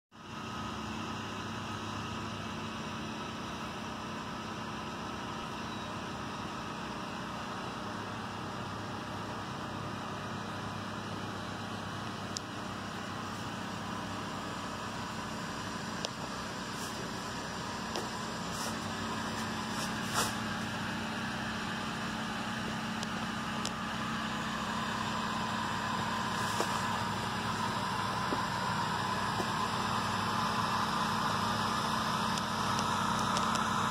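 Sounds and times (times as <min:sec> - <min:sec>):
engine drone: 0:00.2 - 0:33.9.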